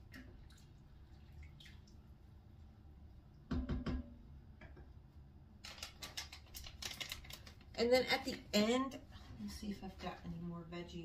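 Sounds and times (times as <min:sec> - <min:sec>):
light clicks and rattles: 0:05.6 - 0:07.8.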